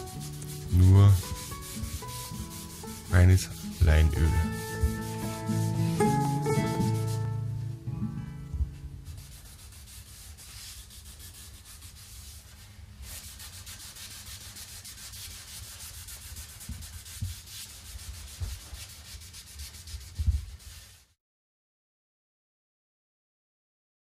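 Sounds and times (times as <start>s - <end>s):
cloth rubbing on wood: 0.0s - 7.4s, 9.0s - 21.2s.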